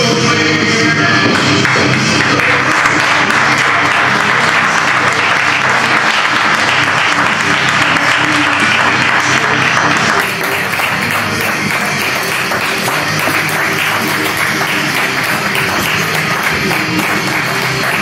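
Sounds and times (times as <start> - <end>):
rock music: 0.0 - 18.0
audience applauding: 1.3 - 18.0.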